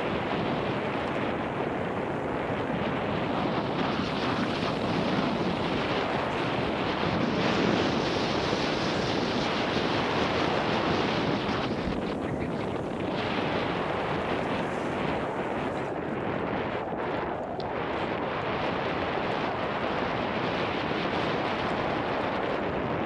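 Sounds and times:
bike tyres rolling over dirt: 0.0s - 23.0s
wind on microphone: 0.0s - 23.0s.

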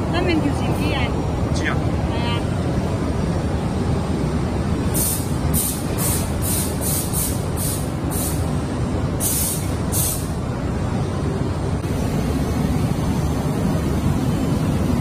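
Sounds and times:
short high hisses: 5.0s - 8.4s, 9.2s - 10.3s.

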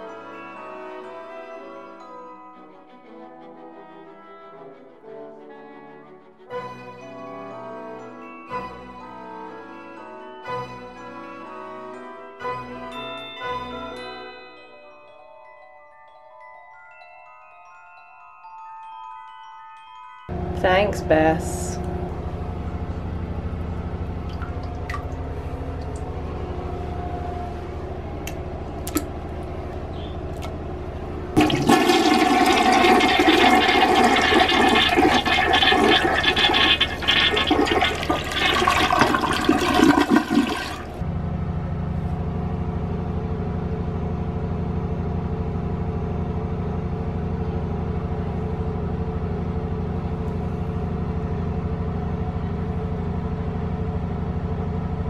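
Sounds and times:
steady low hum: 20.3s - 55.0s
toilet flushing: 31.4s - 41.0s.

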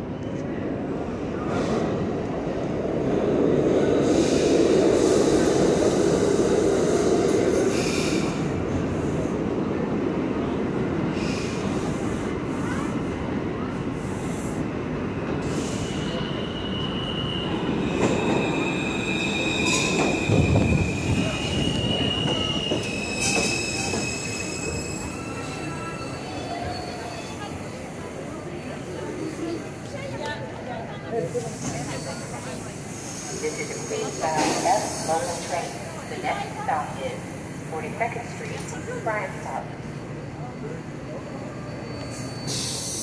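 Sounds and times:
subway train rumbling: 0.0s - 43.0s
train brakes squealing: 4.0s - 9.3s, 11.1s - 13.0s, 15.4s - 30.1s, 31.2s - 36.1s, 39.9s - 43.0s.

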